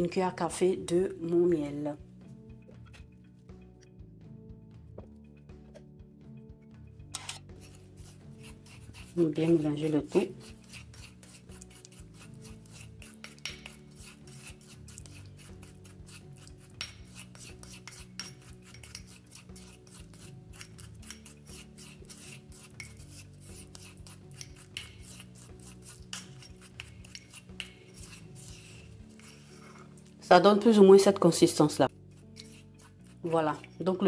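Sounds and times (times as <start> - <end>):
wooden spoon scraping ceramic bowl: 7.2 - 30.3, 32.1 - 34.0.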